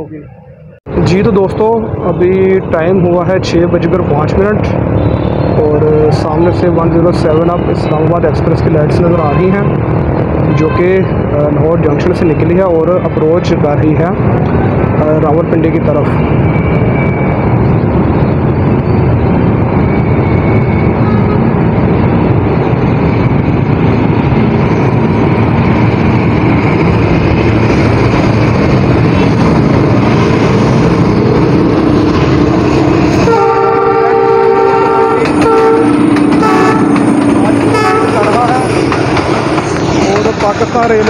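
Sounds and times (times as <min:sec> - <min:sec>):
train engine and wheels rumbling: 0:00.0 - 0:41.0
train horn chord: 0:33.2 - 0:38.6.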